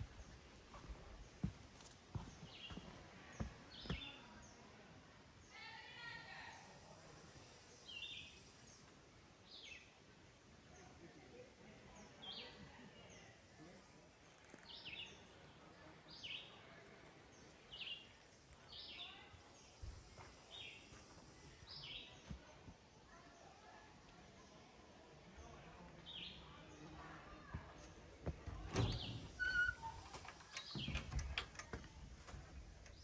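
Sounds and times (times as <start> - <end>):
soft low thumps: 0.0 - 4.1, 26.8 - 29.7.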